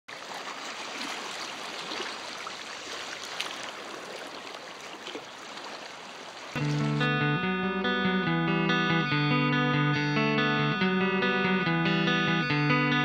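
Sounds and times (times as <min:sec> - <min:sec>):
lake water lapping at shore: 0:00.1 - 0:07.1.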